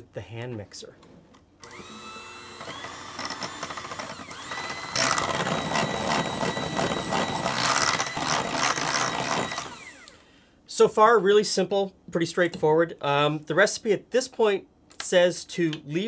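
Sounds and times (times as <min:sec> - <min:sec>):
electric hand mixer whining: 0:01.6 - 0:10.2.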